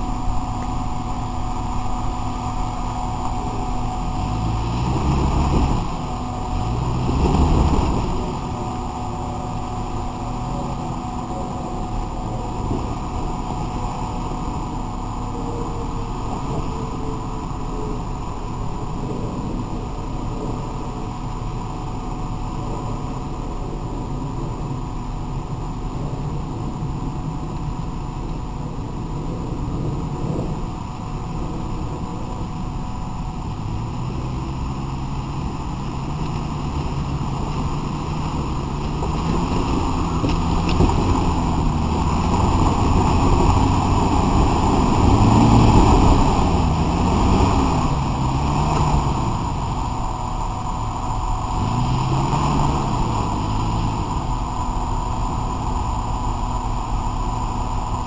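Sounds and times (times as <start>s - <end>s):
suv engine revving: 0.0s - 58.0s.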